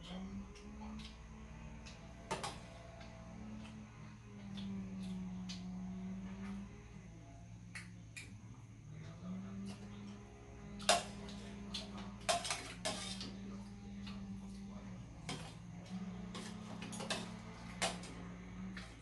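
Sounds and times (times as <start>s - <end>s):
faint low hum: 0.0s - 19.0s
cutlery clinking on metal plates: 11.8s - 13.4s.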